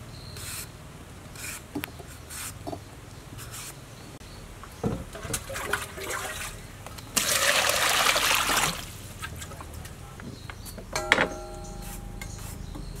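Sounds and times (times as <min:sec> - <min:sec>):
water gushing into a steel bowl: 0:05.2 - 0:09.0.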